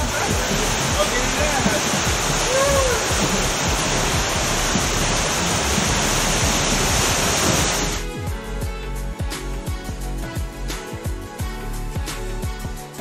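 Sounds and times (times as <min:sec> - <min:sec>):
water rushing through slide tube: 0:00.0 - 0:08.0
background music with a beat: 0:00.0 - 0:13.0.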